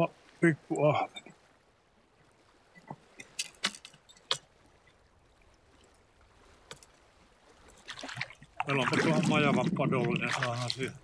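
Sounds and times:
faint water sounds: 0.0s - 11.0s
fishing gear knocks and clicks: 2.8s - 4.5s.

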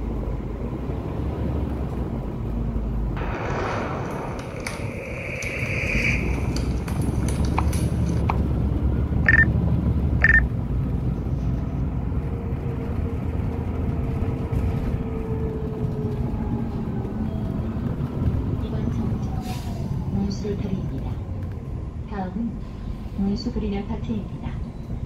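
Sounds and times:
bus engine rumble and road noise: 0.0s - 25.0s
short high beeps: 9.3s - 9.5s, 10.2s - 10.4s.

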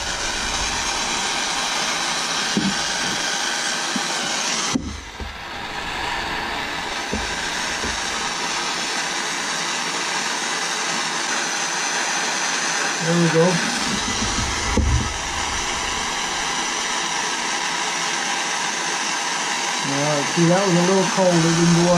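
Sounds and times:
torch hissing: 0.0s - 21.9s
hose knocking on stand: 2.5s - 3.2s, 6.6s - 8.4s, 13.8s - 16.6s.

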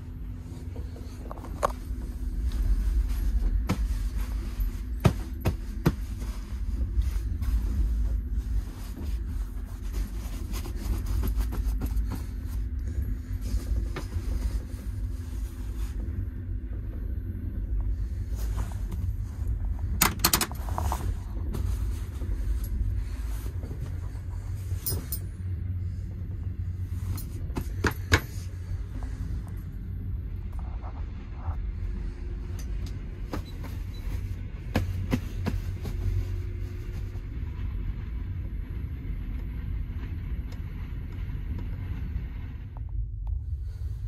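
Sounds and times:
train running on track rumble: 0.0s - 44.0s.

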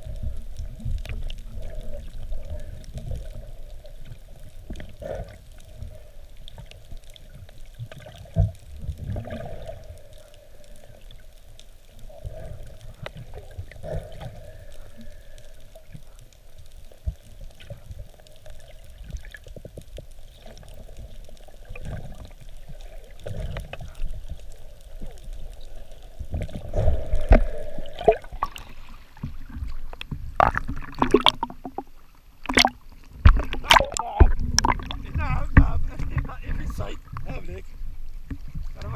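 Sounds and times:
muffled underwater water noise: 0.0s - 38.9s
water bubbling and sloshing: 0.0s - 38.9s
low knocks underwater: 26.4s - 37.5s.

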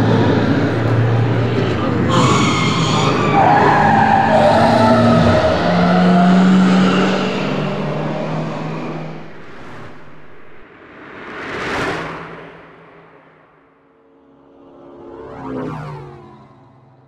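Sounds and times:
car engine hum: 0.0s - 10.6s
tyres screeching: 0.4s - 10.6s.

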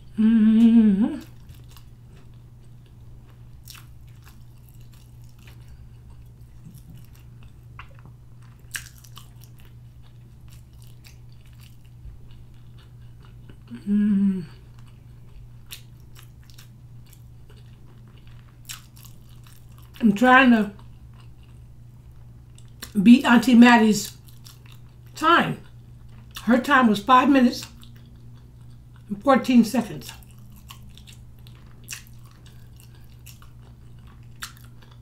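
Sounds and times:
person humming mm: 0.0s - 1.4s, 13.7s - 14.6s
steady low hum: 0.0s - 35.0s
person chewing wetly: 1.2s - 20.0s, 20.7s - 23.0s, 24.1s - 26.5s, 27.6s - 29.1s, 30.1s - 35.0s.

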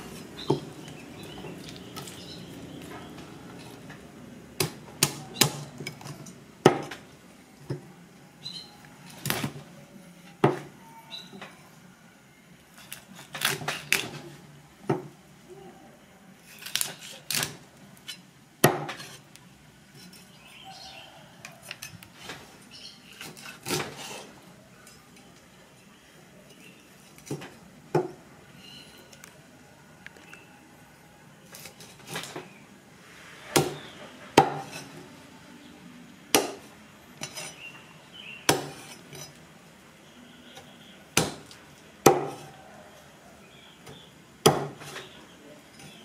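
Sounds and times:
cleaver chopping on wooden block: 18.6s - 19.0s, 34.4s - 34.7s, 38.5s - 38.9s, 41.2s - 42.5s, 44.4s - 45.0s.

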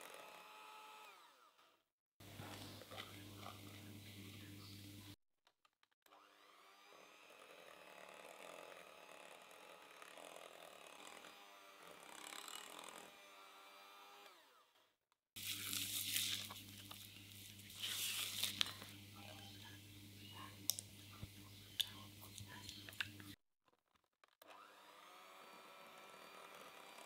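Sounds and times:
electric hand mixer running: 0.0s - 3.7s, 6.1s - 14.7s, 24.4s - 27.0s.

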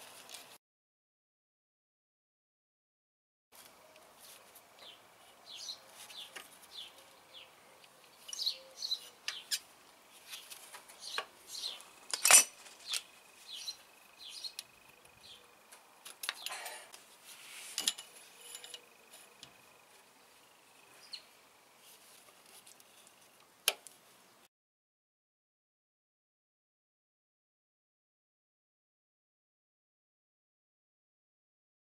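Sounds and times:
metal wrench clinking: 17.8s - 19.2s.

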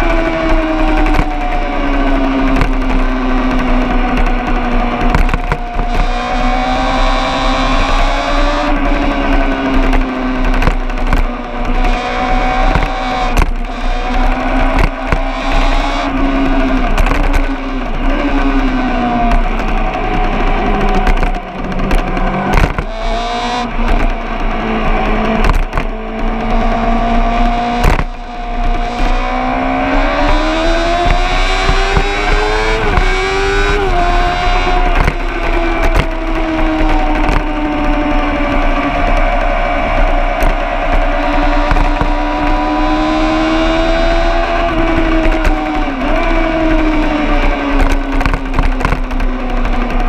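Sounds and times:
knocks and clatter: 0.0s - 50.0s
engine revving hard: 26.3s - 48.3s.

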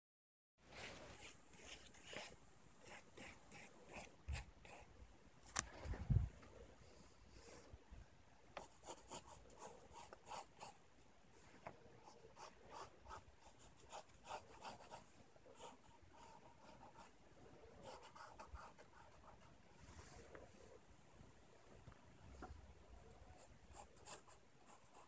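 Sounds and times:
pencil scratching on paper: 0.8s - 4.9s, 8.6s - 10.8s, 12.0s - 17.2s, 17.8s - 19.5s, 23.4s - 25.0s.

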